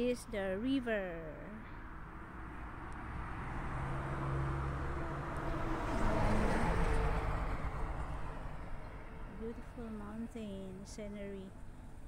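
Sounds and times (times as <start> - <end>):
car driving past: 1.6 - 9.8
truck driving past: 1.6 - 12.0.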